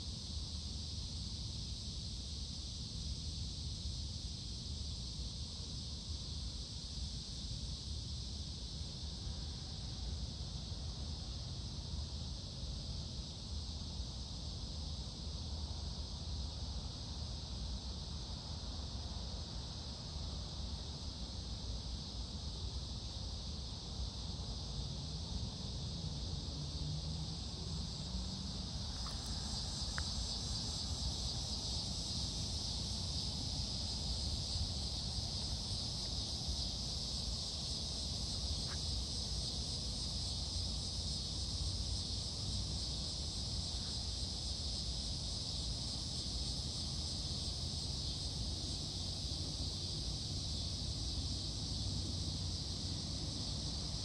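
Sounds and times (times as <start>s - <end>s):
insect chorus buzzing: 0.0s - 54.0s.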